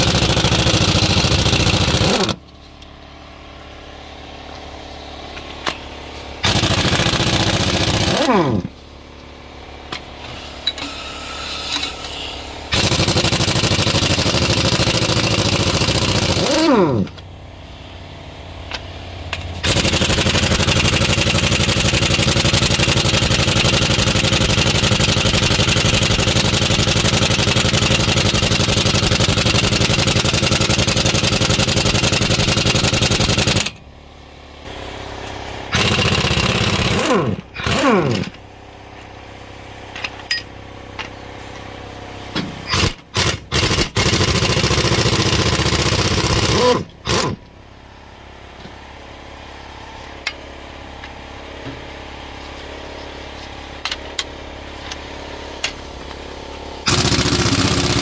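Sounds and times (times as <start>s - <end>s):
impact wrench hammering: 0.0s - 2.5s, 6.4s - 8.7s, 12.7s - 17.2s, 35.7s - 38.4s, 42.3s - 47.4s, 56.8s - 58.0s.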